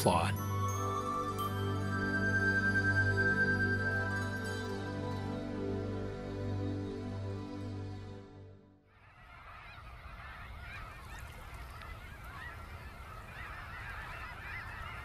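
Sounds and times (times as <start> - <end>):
geese honking: 9.0 - 15.0.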